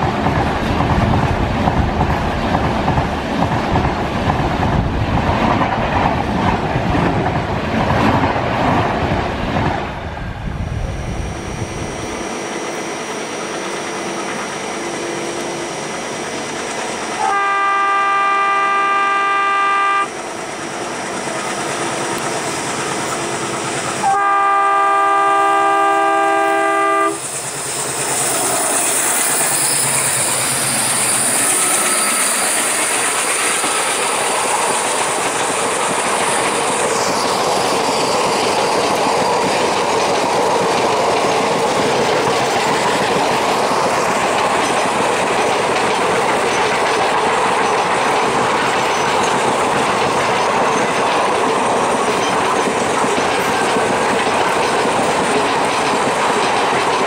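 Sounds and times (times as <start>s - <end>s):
train rushing past: 0.0s - 57.0s
locomotive chord horn blasts: 17.2s - 20.1s, 24.0s - 27.2s.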